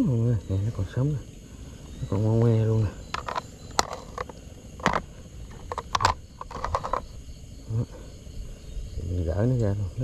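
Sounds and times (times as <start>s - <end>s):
night insects trilling: 0.0s - 10.0s
hands handling eel and fishing line: 3.1s - 7.2s.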